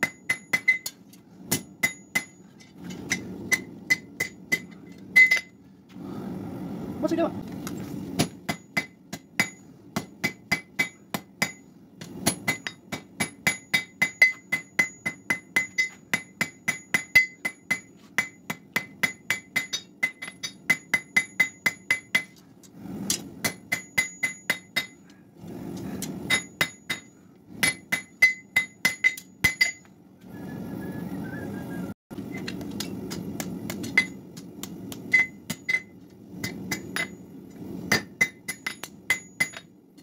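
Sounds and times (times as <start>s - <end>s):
hammer striking steel on anvil: 0.0s - 5.6s, 8.2s - 22.4s, 23.0s - 25.1s, 26.0s - 29.9s, 32.3s - 40.0s.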